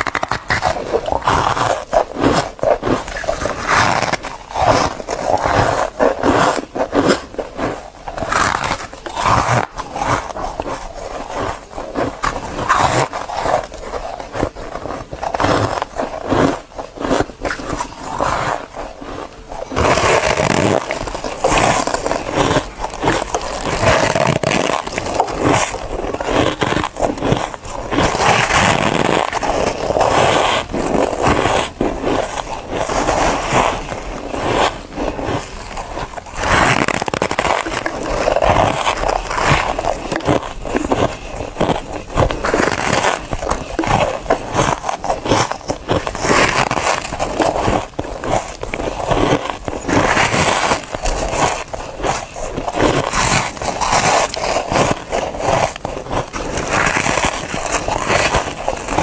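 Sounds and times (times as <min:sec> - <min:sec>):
crunchy chewing of frost: 0:00.0 - 0:59.0.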